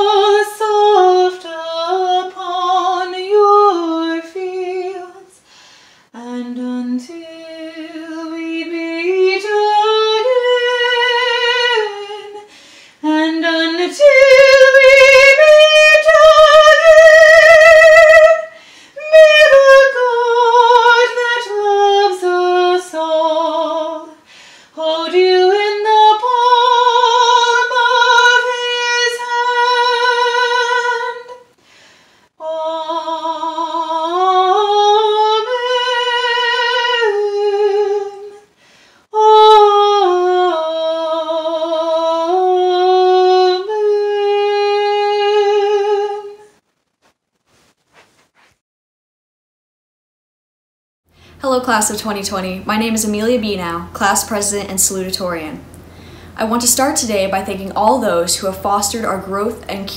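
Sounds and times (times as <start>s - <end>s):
woman singing: 0.0s - 5.4s, 6.2s - 31.5s, 32.4s - 38.5s, 39.1s - 46.6s.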